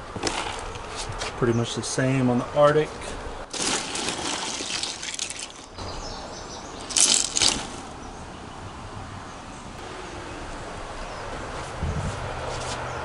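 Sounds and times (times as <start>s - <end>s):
hand splashing through ice water: 3.5s - 5.8s, 6.8s - 8.0s
ice clinking: 3.5s - 5.8s, 6.8s - 7.8s.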